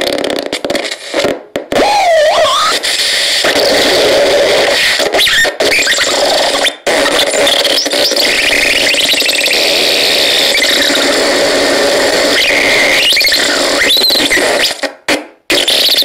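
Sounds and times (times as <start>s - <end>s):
harsh noisy electronic squeal: 1.8s - 14.8s, 15.5s - 16.0s.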